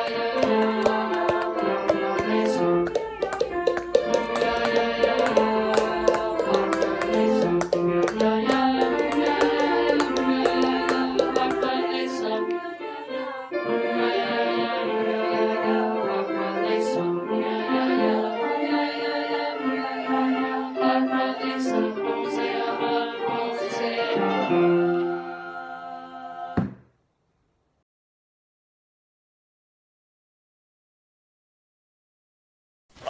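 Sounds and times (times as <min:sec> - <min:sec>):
percussion taps: 0:00.0 - 0:12.6, 0:26.6 - 0:26.8
choir singing a cappella: 0:00.0 - 0:26.8.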